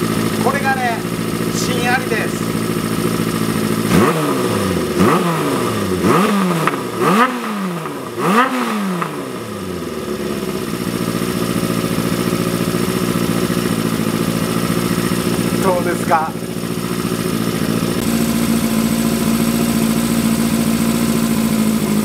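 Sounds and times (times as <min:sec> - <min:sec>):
motorcycle engine idling: 0:00.0 - 0:22.0
motorcycle engine revving: 0:00.0 - 0:22.0.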